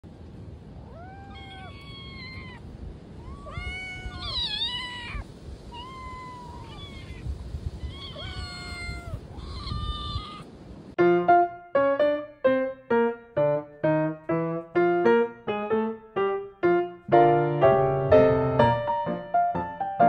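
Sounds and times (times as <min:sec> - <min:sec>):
cats meowing: 0:00.8 - 0:10.5.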